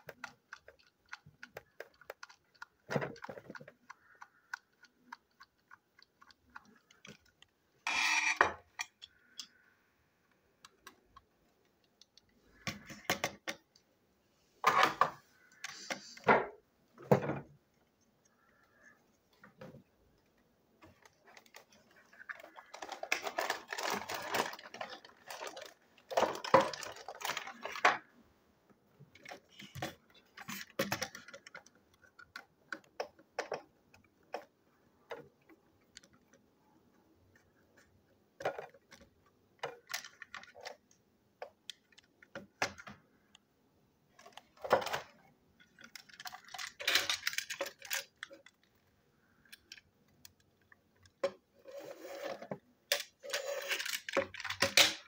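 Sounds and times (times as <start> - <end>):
plastic toy parts clicking: 0.0 - 9.6, 20.8 - 27.8, 29.1 - 36.4, 38.4 - 43.4, 44.2 - 51.4, 52.9 - 55.0.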